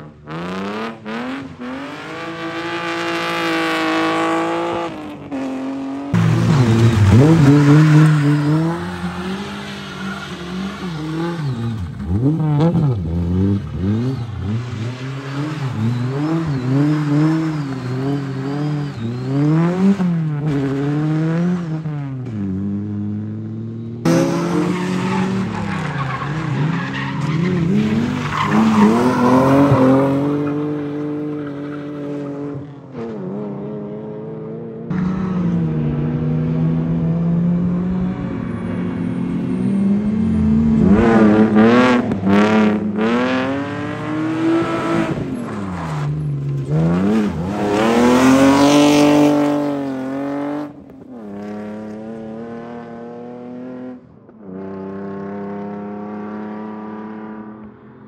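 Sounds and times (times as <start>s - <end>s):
rally car engines revving: 0.0s - 58.0s
tyre squeal: 6.2s - 12.2s, 13.7s - 20.0s, 24.1s - 32.4s.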